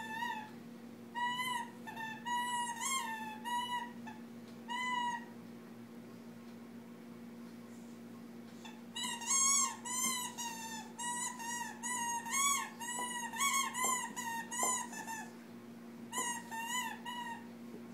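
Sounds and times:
squeaky toy squeaking: 0:01.2 - 0:04.0, 0:09.0 - 0:15.3, 0:16.2 - 0:17.4.

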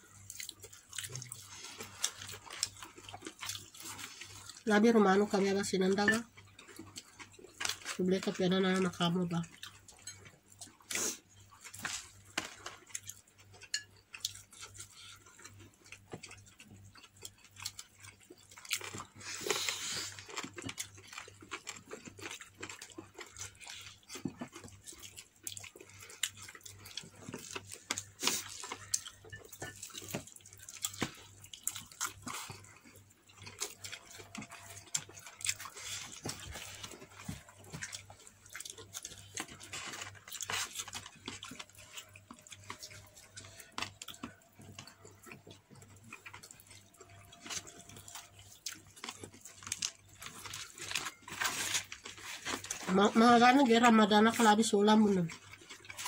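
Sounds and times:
chewing and mouth smacks: 0:00.1 - 0:04.6, 0:06.0 - 0:08.4, 0:09.3 - 0:52.9, 0:55.1 - 0:56.0
fried chicken tearing and crackling: 0:30.0 - 0:53.0.

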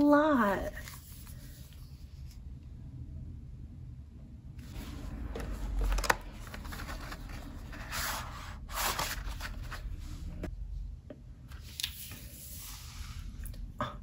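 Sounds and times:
paper pages rustling: 0:00.7 - 0:02.4, 0:04.6 - 0:10.5.

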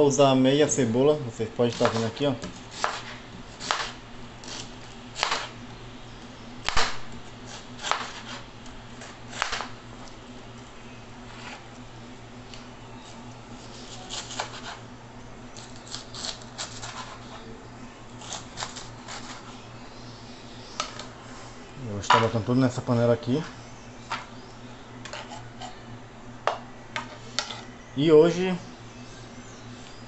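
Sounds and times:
steady low hum: 0:00.0 - 0:30.0
knife chopping on cutting board: 0:01.7 - 0:05.5, 0:06.6 - 0:08.4.

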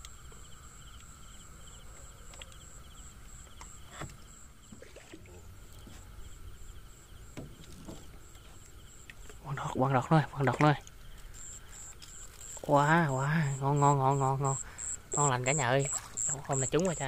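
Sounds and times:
crickets and insects trilling: 0:00.0 - 0:17.0.

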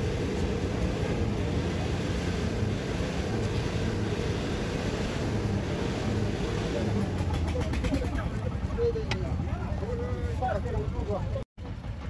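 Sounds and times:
low mechanical drone: 0:00.0 - 0:07.8.

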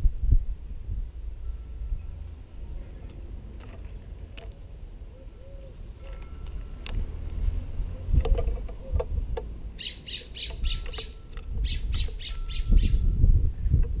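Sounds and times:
bird harsh calls: 0:09.8 - 0:13.0.

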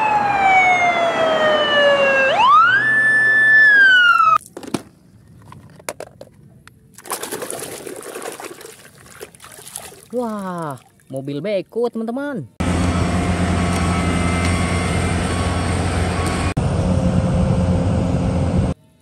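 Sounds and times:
ambulance siren wailing: 0:00.0 - 0:04.4
water splashing in a basin: 0:07.0 - 0:11.2.

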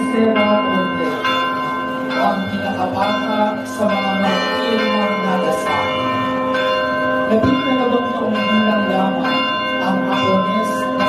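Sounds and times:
church bells ringing: 0:00.0 - 0:11.0
voices: 0:02.1 - 0:06.2, 0:07.3 - 0:11.0.

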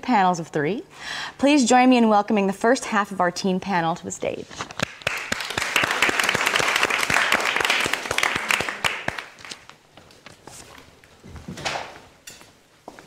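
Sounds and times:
audience applause: 0:04.9 - 0:09.6.

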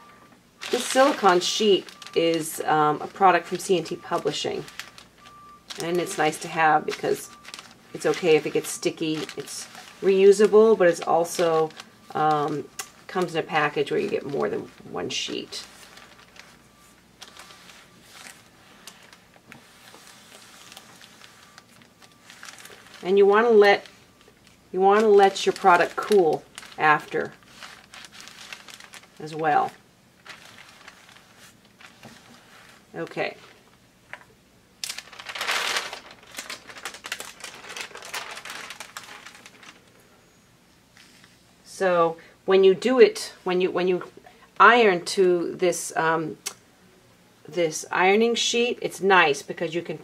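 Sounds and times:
release paper crinkling: 0:00.1 - 0:40.2
sheet ticking and rustling: 0:00.6 - 0:32.8, 0:34.8 - 0:40.0.

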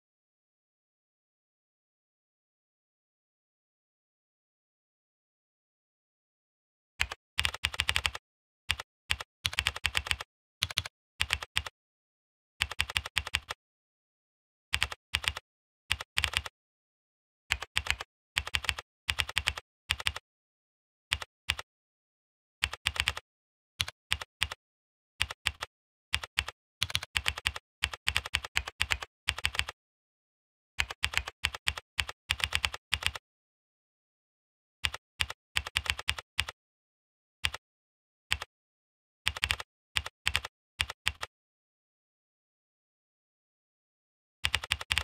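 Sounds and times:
computer keyboard typing: 0:07.0 - 0:11.7, 0:12.6 - 0:13.6, 0:14.8 - 0:16.5, 0:17.5 - 0:20.2, 0:21.1 - 0:21.6, 0:22.6 - 0:23.2, 0:23.8 - 0:24.6, 0:25.2 - 0:29.8, 0:30.8 - 0:33.2, 0:34.8 - 0:36.6, 0:39.3 - 0:41.3, 0:44.4 - 0:45.0.

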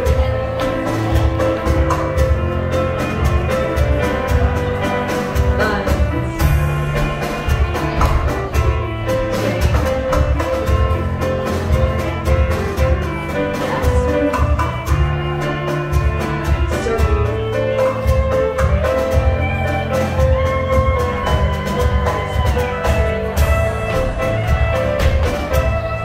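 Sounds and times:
live dance band playing: 0:00.0 - 0:26.0.

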